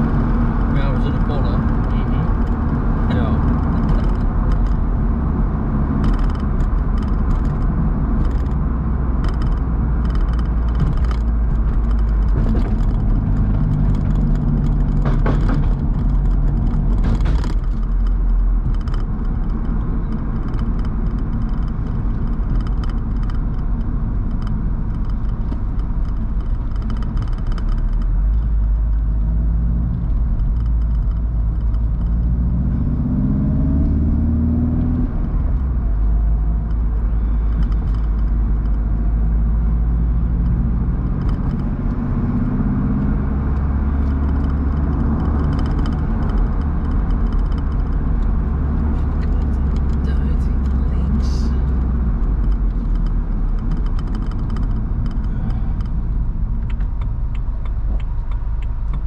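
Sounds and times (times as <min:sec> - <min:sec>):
car engine and road rumble: 0:00.0 - 0:59.0.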